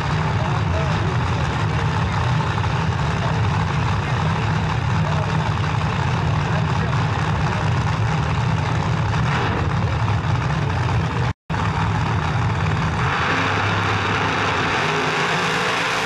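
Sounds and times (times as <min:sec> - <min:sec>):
drag car engines rumbling: 0:00.0 - 0:16.0
cars launching at full throttle: 0:12.7 - 0:16.0.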